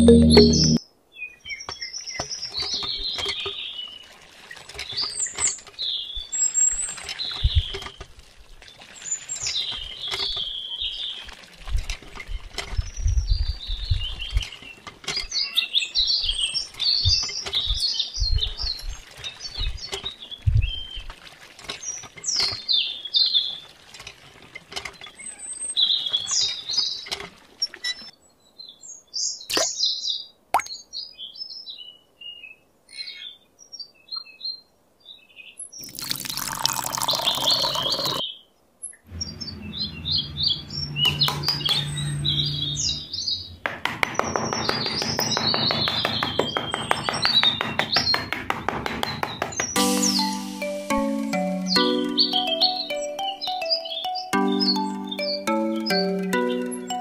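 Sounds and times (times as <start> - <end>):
birds chirping: 35.8 - 38.5, 39.1 - 57.0.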